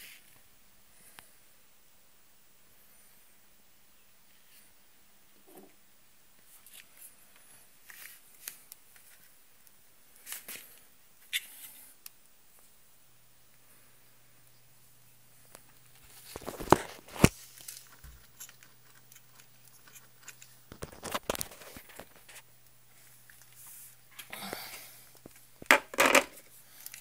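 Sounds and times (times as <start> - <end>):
faint low hum: 0.0 - 27.0
electrical crackling and pops: 15.4 - 24.4.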